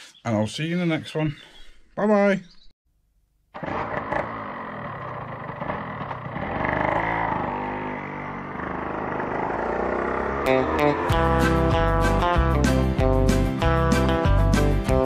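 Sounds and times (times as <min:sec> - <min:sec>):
motorcycle engine running: 0:03.6 - 0:12.5
guitar music: 0:10.4 - 0:15.0.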